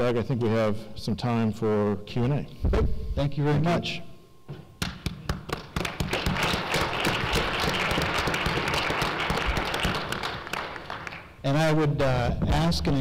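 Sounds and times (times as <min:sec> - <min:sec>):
audience applauding: 0:04.8 - 0:11.4.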